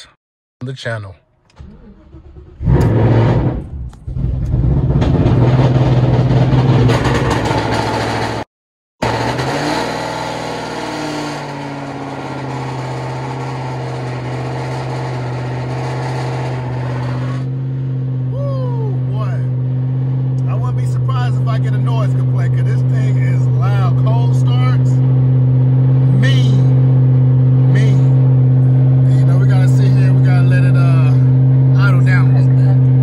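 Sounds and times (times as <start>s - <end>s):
engine cranking: 1.4s - 8.4s
car engine idling: 10.5s - 33.0s.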